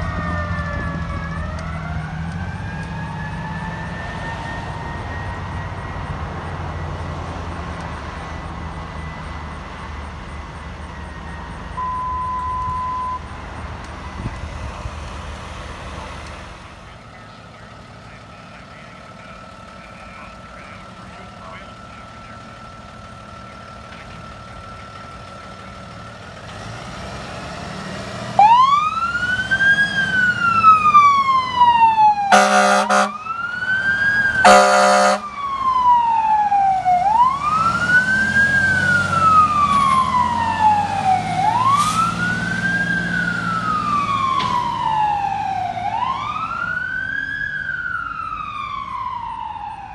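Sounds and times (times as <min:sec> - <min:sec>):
ambulance siren wailing: 0:00.0 - 0:49.9
diesel engine idling: 0:00.0 - 0:49.9
loud horn blasts: 0:32.3 - 0:33.2, 0:34.4 - 0:35.3.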